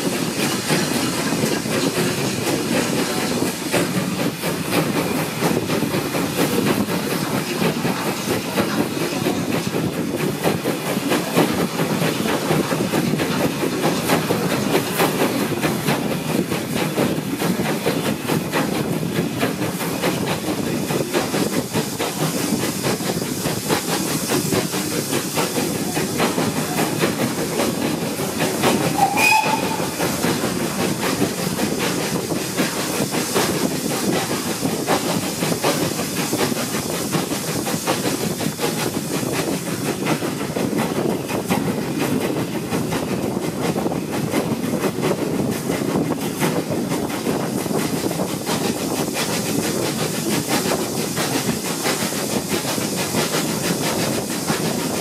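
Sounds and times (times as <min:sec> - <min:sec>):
train rumbling: 0:00.0 - 0:55.0
wavering high squeal: 0:28.9 - 0:30.1.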